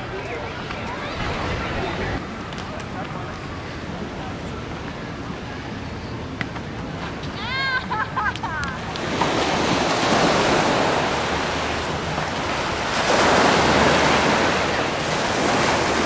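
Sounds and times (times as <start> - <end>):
waves washing on sand: 8.8 - 16.0.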